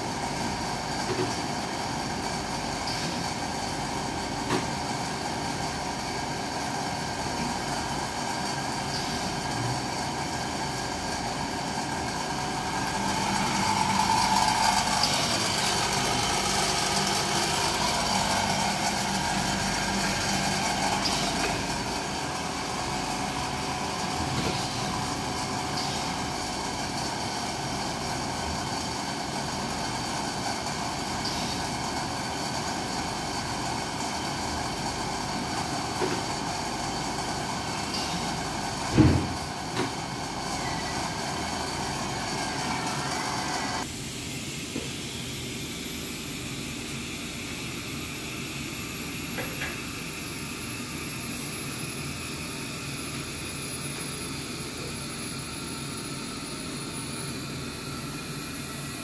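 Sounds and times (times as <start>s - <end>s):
steam sterilizer running: 0.0s - 59.0s
vacuum pump: 0.0s - 59.0s
loud thump: 38.9s - 39.4s.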